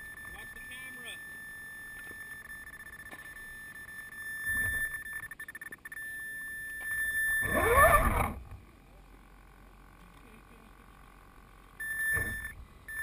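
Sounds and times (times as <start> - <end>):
electric motor whine: 7.3 - 8.6.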